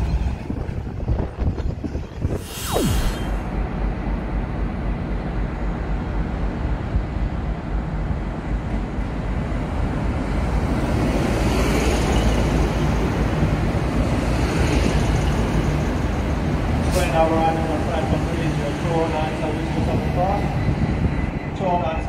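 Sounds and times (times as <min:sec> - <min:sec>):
diesel train engines running: 0:03.4 - 0:22.0
train wheels on rails: 0:03.7 - 0:22.0.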